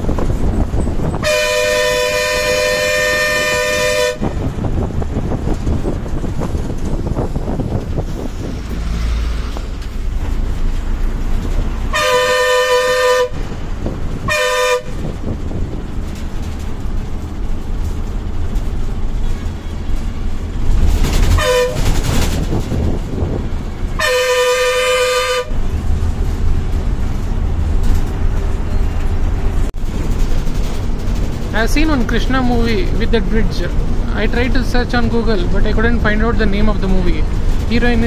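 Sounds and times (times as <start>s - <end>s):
engine and road rumble: 0.0s - 38.0s
vehicle horn honking: 1.2s - 4.4s, 11.9s - 13.4s, 14.2s - 15.0s, 21.4s - 21.8s, 24.0s - 25.6s.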